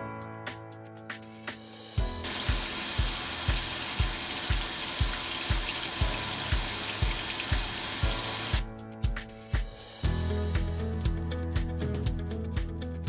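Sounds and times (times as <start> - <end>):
background music with steady beat: 0.0 - 13.0
coolant spraying with loud hiss: 2.2 - 8.6
grinder running: 2.2 - 8.6.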